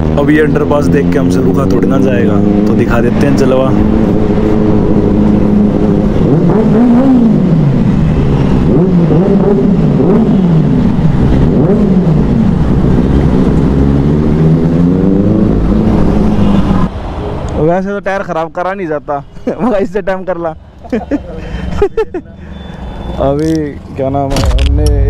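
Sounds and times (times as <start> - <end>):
motorcycle engine revving: 0.0 - 16.9.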